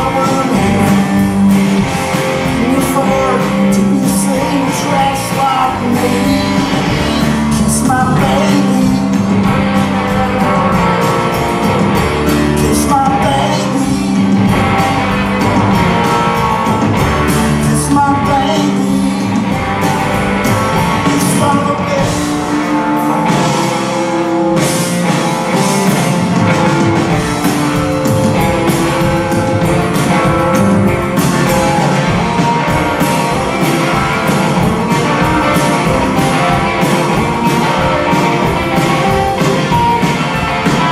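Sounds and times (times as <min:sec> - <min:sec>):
person singing lead vocal: 0:00.0 - 0:11.4, 0:12.2 - 0:14.7, 0:17.4 - 0:24.6
drums: 0:00.0 - 0:40.9
electric guitars: 0:00.0 - 0:40.9.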